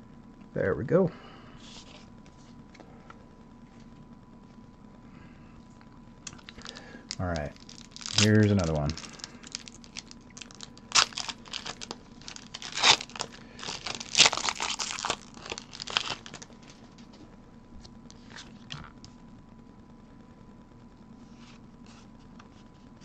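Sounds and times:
foil wrapper tearing and crinkling: 6.2 - 16.8.

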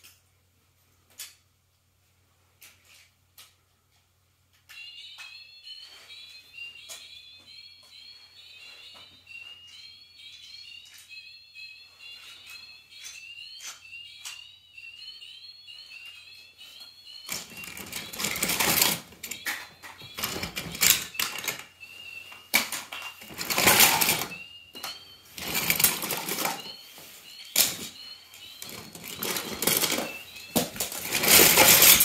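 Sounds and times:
toy cars clattering: 17.2 - 21.8, 22.5 - 26.8, 27.5 - 32.0.

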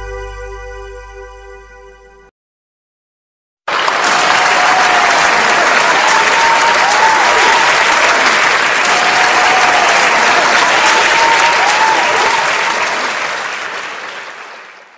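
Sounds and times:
audience applauding: 3.7 - 14.9.

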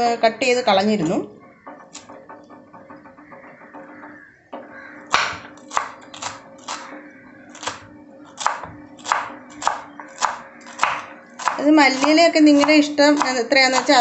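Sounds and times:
knife chopping herbs: 5.1 - 6.9, 7.5 - 7.8, 8.4 - 14.0.

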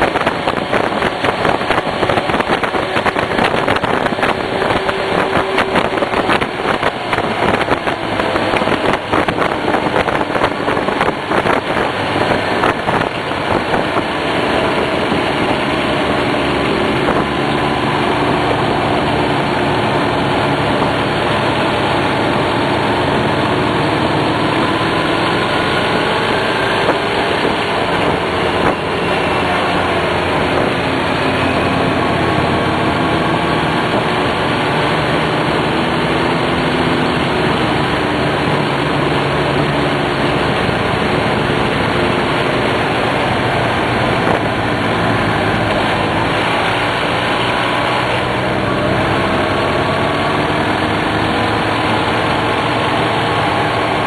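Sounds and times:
motorcycle engine running: 0.0 - 54.0
rough uneven noise: 0.0 - 54.0.

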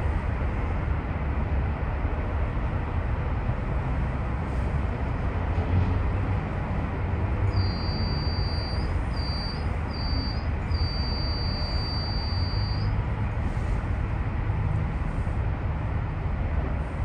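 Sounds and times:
vehicle rumble: 0.0 - 17.0
thin high-pitched tone: 7.6 - 12.9.

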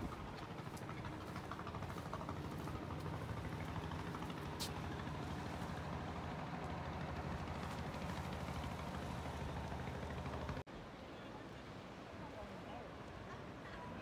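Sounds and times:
low engine hum: 0.0 - 10.7.

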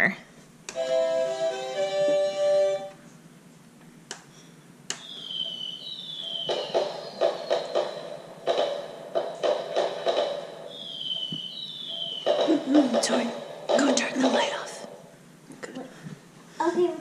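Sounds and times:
toy fireworks sound effect: 6.4 - 14.9.

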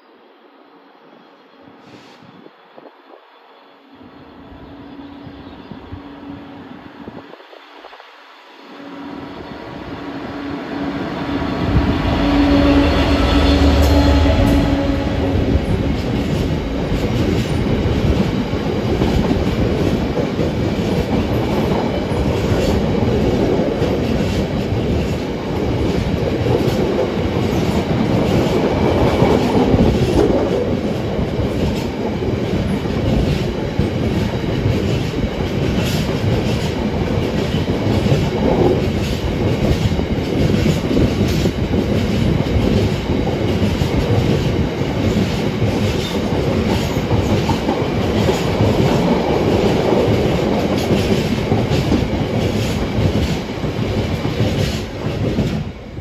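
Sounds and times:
freight train rolling past: 0.0 - 56.0.

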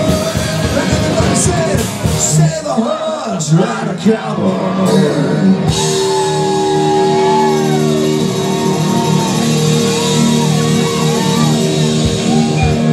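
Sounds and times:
live country-rock band: 0.0 - 12.9
electric guitar bending notes: 4.5 - 12.9.

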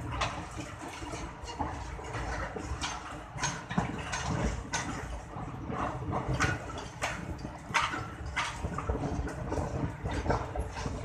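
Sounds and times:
train rumble inside coach: 0.0 - 3.7
wheels clacking over rail joints: 0.0 - 11.0.

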